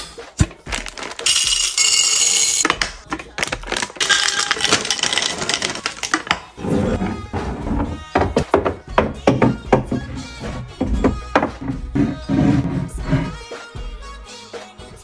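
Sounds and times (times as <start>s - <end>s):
candies clattering into glass: 0.4s - 6.6s.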